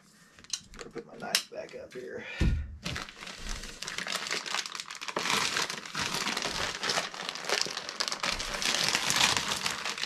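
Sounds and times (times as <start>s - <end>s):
thick plastic crinkling: 2.8s - 10.0s.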